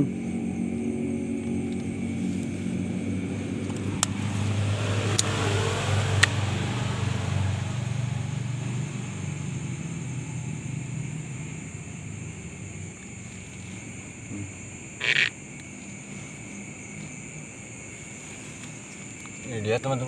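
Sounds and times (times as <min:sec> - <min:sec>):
vehicle passing by: 0:00.0 - 0:15.3
sharp clicks: 0:15.0 - 0:15.4.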